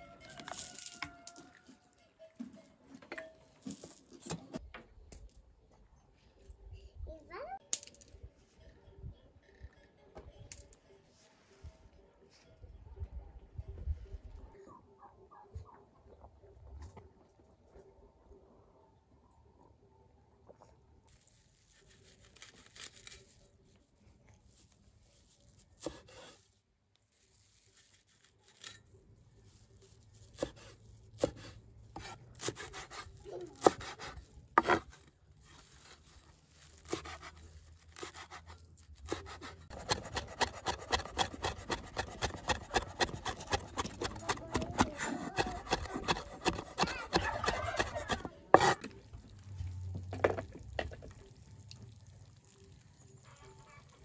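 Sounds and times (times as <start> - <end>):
cleaver chopping on wooden board: 39.1 - 48.8.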